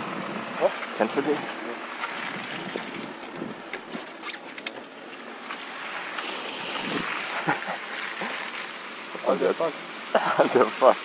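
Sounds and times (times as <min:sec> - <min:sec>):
wind on microphone: 0:02.2 - 0:03.7.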